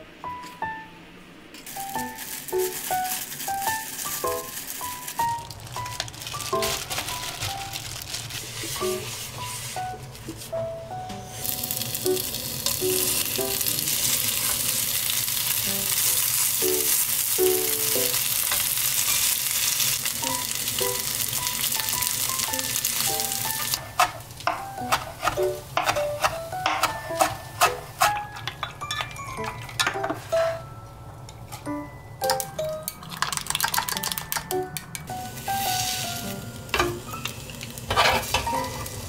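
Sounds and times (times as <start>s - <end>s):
light background music: 0.0s - 14.4s, 15.5s - 18.4s, 20.1s - 39.0s
rice balls sizzling in oil: 1.6s - 9.8s, 11.3s - 28.0s, 35.1s - 39.0s
knife chopping on cutting board: 23.9s - 28.2s.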